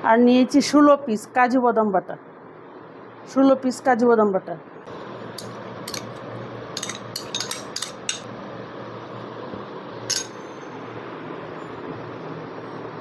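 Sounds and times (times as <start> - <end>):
spoon clinking on bowls: 5.4 - 6.2, 6.8 - 8.3, 10.1 - 10.6.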